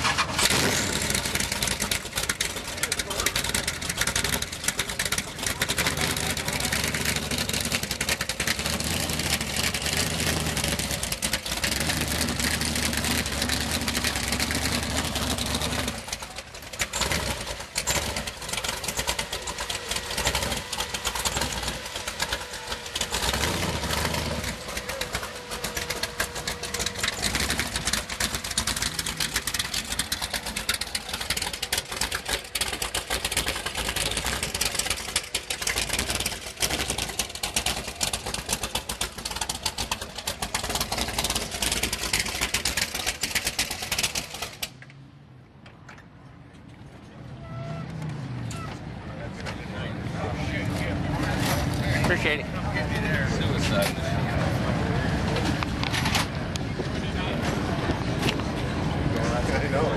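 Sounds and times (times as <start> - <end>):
motorcycle engine revving: 0.0 - 44.8.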